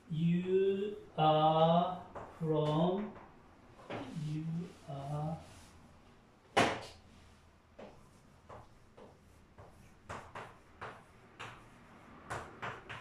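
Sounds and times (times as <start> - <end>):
chalk writing on blackboard: 3.8 - 5.8, 6.8 - 13.0.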